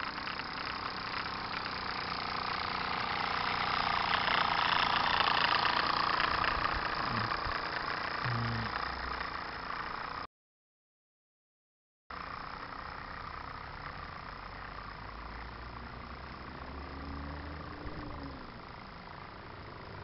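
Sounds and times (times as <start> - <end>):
model steam engine mechanism noise: 0.0 - 10.3.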